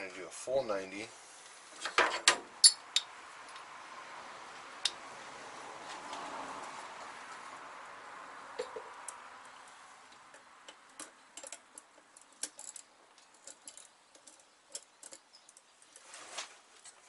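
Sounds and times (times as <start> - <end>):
soft hiss: 0.0 - 1.9
small metallic clicks and taps: 10.1 - 16.0.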